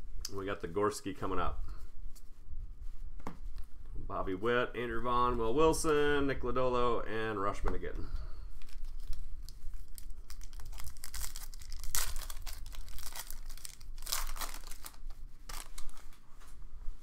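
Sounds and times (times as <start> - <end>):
foil wrapper crinkling: 8.6 - 16.2
foil wrapper ripping: 8.6 - 16.2.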